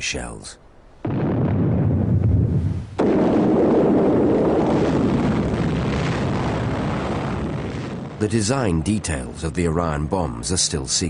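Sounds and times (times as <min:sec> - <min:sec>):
explosion blast: 0:01.0 - 0:09.5
explosion rumbling: 0:01.0 - 0:10.5.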